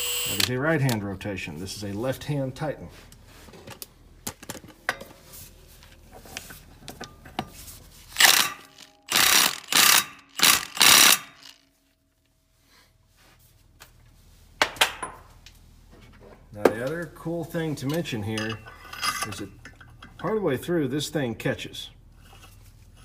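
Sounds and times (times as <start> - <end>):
impact wrench bursts: 0.0 - 0.6, 8.2 - 11.6.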